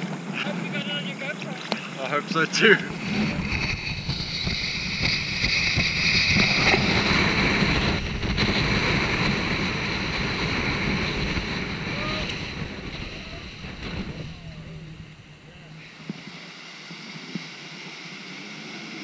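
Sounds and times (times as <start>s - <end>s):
wind buffeting microphone: 0.0s - 17.5s
water rushing and splashing: 0.0s - 18.8s
outboard motor boat: 0.0s - 19.0s.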